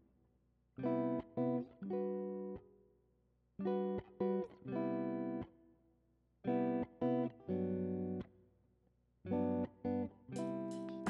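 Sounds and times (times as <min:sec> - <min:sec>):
guitar chords: 0:00.8 - 0:02.7, 0:03.6 - 0:05.5, 0:06.5 - 0:08.3, 0:09.3 - 0:11.0.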